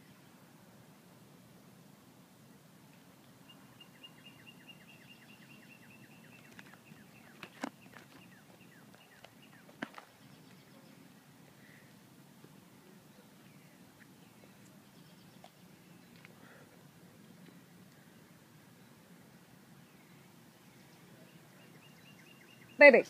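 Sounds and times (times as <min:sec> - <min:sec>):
bird chirping: 0:03.4 - 0:11.9, 0:12.5 - 0:16.6, 0:17.2 - 0:23.0.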